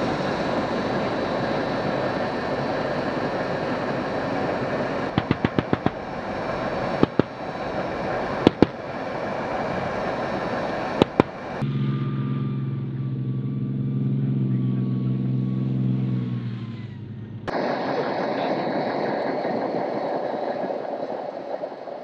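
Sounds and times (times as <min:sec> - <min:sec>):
vehicle engines running: 0:00.0 - 0:17.5
gunfire shots: 0:05.1 - 0:06.0, 0:07.0 - 0:07.4.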